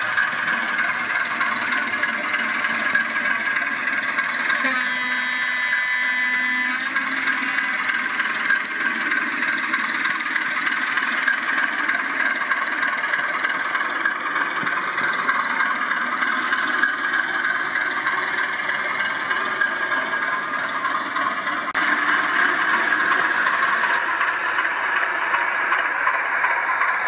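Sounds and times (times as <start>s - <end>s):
model trains whirring: 0.0s - 27.0s
high pitched tone: 4.6s - 7.0s.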